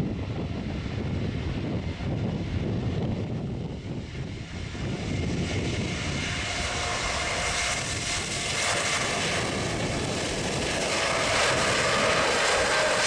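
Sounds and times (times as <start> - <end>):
jet engines at takeoff power: 0.0 - 13.0.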